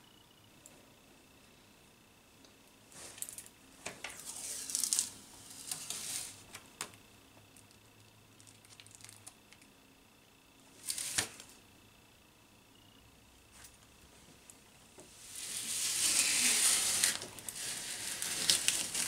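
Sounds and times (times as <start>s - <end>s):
plastic film crinkling: 4.3s - 6.5s, 15.3s - 19.0s
faint plastic rustles: 15.0s - 19.0s.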